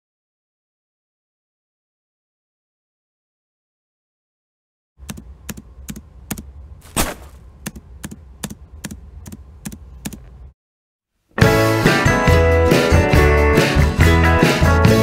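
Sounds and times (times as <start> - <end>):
footstep taps: 5.0 - 10.4
low steady hum: 5.0 - 10.6.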